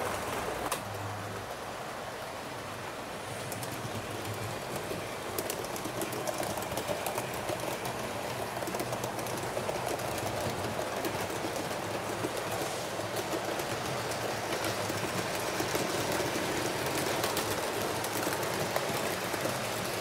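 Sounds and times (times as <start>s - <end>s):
model train rattling on track: 2.0s - 20.0s.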